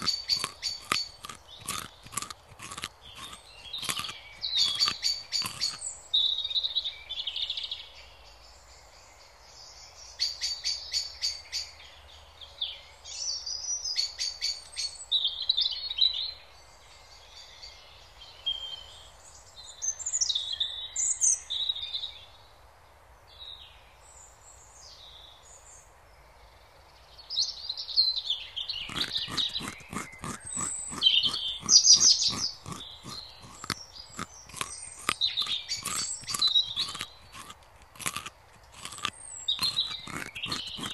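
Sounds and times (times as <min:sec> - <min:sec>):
rabbit nibbling grass: 0:00.0 - 0:05.9, 0:28.9 - 0:40.9
small birds chirping: 0:00.0 - 0:07.6, 0:27.4 - 0:40.9.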